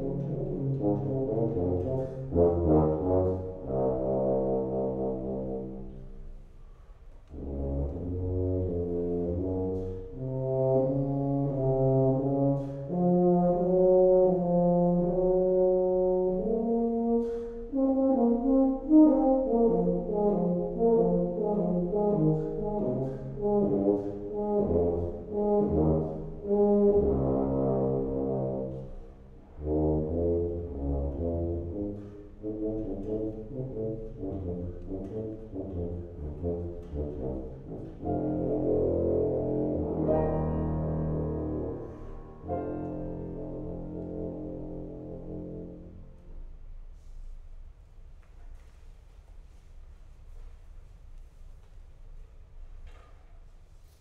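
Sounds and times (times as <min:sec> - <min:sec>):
tuba playing a melody: 0:00.0 - 0:06.6, 0:07.2 - 0:47.2
piano accompaniment: 0:07.4 - 0:46.5.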